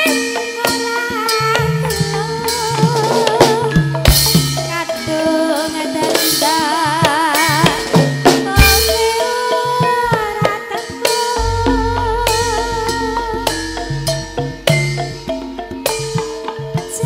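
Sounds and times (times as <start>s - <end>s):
woman singing with vibrato: 0.0s - 14.8s
ringing metallophone notes: 0.0s - 17.0s
drum strokes: 11.2s - 17.0s
deep heavy gong stroke: 11.4s - 16.7s.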